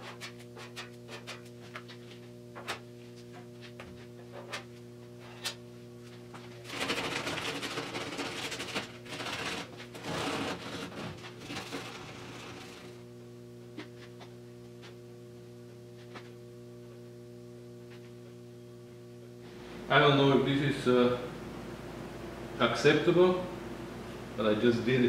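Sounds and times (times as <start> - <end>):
steady electrical hum: 0.0 - 25.0
sandpaper rasping strokes: 9.4 - 13.0.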